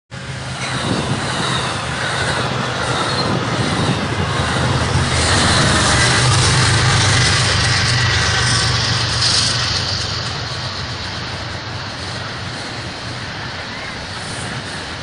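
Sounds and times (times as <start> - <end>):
locomotive engine hum: 0.1 - 15.0
train wheels on rails: 0.1 - 15.0.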